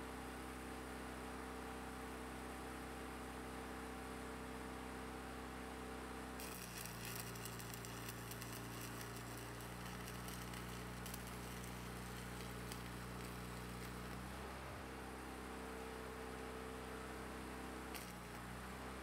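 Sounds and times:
welding arc crackling and popping: 6.4s - 14.9s, 17.8s - 19.0s
electrical hum: 6.4s - 16.3s.

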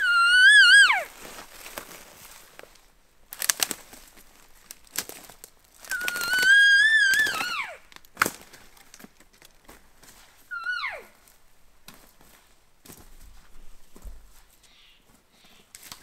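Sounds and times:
elk call whine: 0.0s - 1.1s, 10.5s - 11.2s
footsteps through brush: 0.0s - 16.0s.

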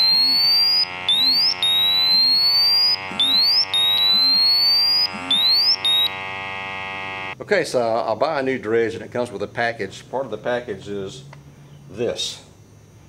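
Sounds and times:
gas meter alarm rising tones: 0.0s - 7.4s.

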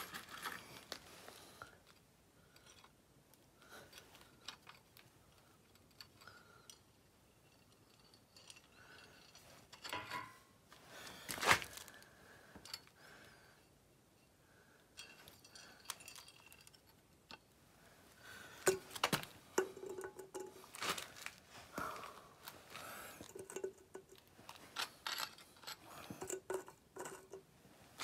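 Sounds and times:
small metal clicks and handling: 1.6s - 10.4s, 12.6s - 13.0s, 14.8s - 17.5s, 18.6s - 21.4s, 22.4s - 27.5s.

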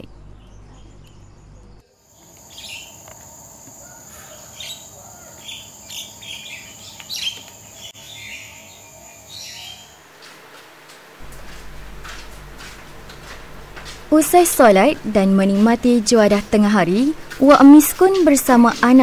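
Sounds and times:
birds chirping: 0.0s - 10.4s.

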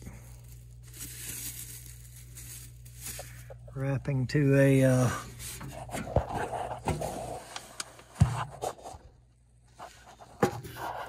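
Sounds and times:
wrapping rustling and rubbing: 0.0s - 3.7s, 5.1s - 8.8s.

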